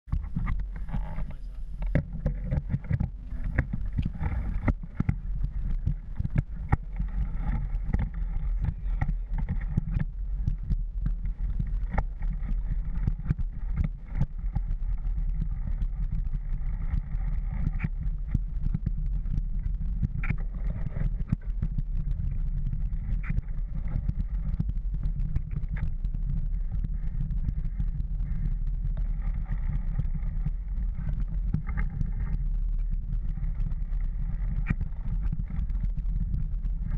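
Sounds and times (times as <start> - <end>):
wind and tyre rumble: 0.0 - 36.9
bike clicking and rattling: 0.1 - 29.0.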